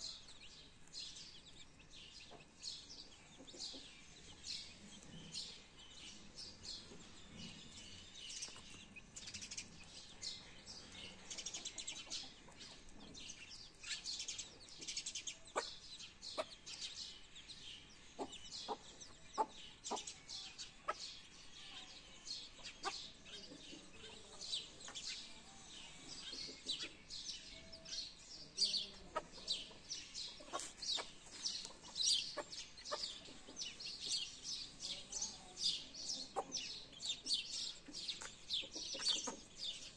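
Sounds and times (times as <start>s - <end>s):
chicks peeping: 0.0s - 39.9s
hen clucking: 15.4s - 16.8s, 18.2s - 20.2s, 20.8s - 21.0s, 28.8s - 34.2s, 36.1s - 37.2s, 37.9s - 39.8s.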